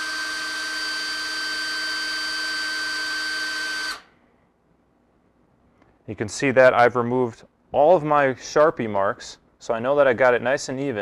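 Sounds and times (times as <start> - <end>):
cordless drill running: 0.0 - 4.1.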